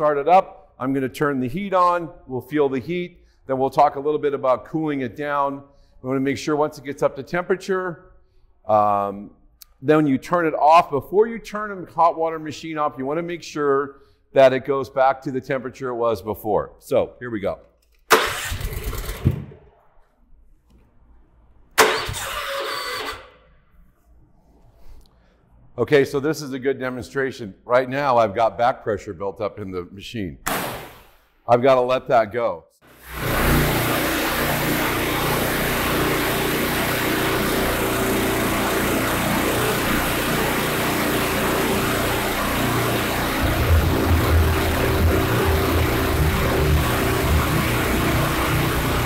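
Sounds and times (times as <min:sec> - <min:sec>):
pressure washer engine turning over: 0:18.1 - 0:19.7, 0:21.8 - 0:23.4, 0:32.9 - 0:49.0.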